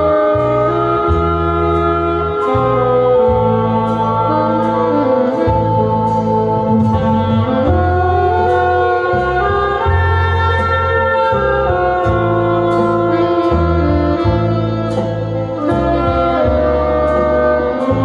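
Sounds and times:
bass line: 0:00.0 - 0:18.0
saxophone melody: 0:00.0 - 0:18.0.

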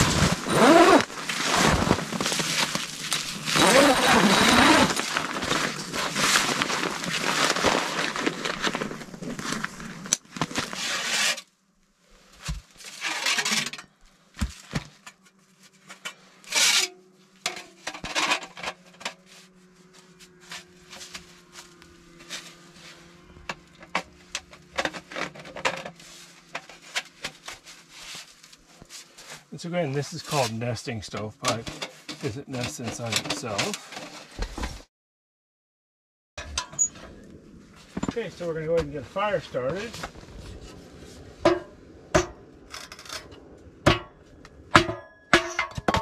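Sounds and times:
metal stovepipe scraping and clinking: 0:36.4 - 0:37.1, 0:44.7 - 0:46.0.

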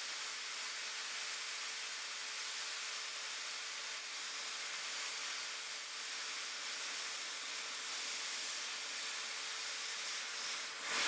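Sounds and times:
air hissing into fire: 0:09.8 - 0:11.0.

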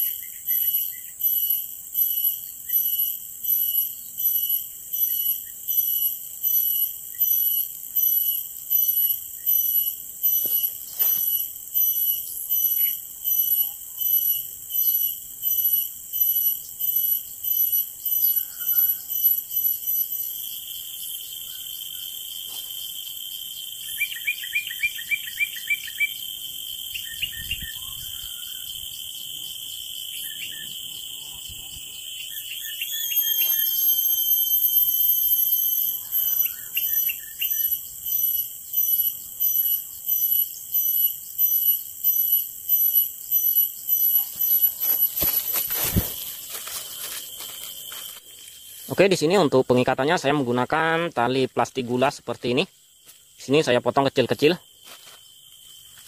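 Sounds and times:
small birds chirping: 0:00.0 - 0:22.1, 0:27.0 - 0:29.5, 0:35.2 - 0:46.4
cicada buzzing: 0:00.0 - 0:56.0.

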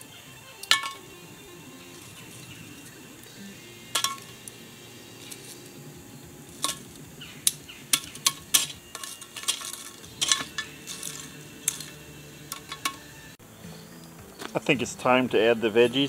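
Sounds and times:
metal tool clinking on iron lid: 0:00.6 - 0:01.1, 0:03.9 - 0:04.5, 0:06.5 - 0:13.2.

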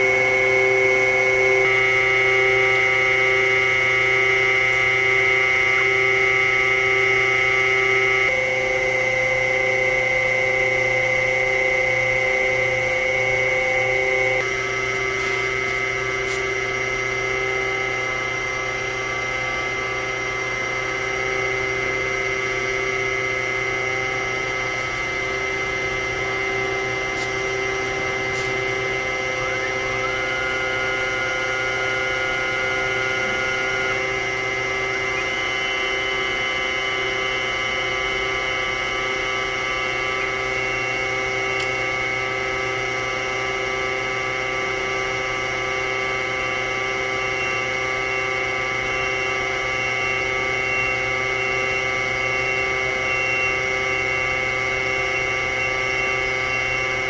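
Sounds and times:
surface grinder motor hum: 0:00.0 - 0:39.0
high machine whine: 0:00.0 - 0:57.0.

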